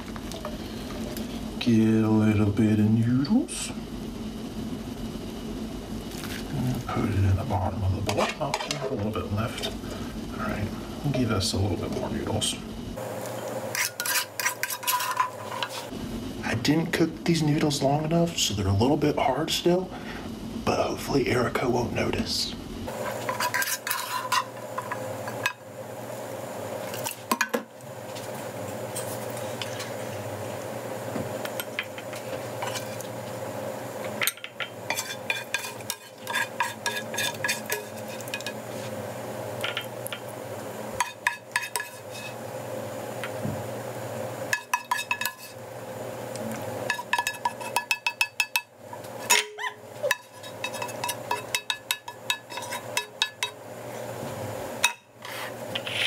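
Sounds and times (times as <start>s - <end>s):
steady hum: 0.0s - 56.0s
utensils clinking on pan and bowls: 8.1s - 9.0s, 13.7s - 15.9s, 23.0s - 25.6s, 31.4s - 33.1s, 34.2s - 38.7s, 39.6s - 40.3s, 41.0s - 42.4s, 44.5s - 45.6s, 46.8s - 53.6s, 54.8s - 55.2s.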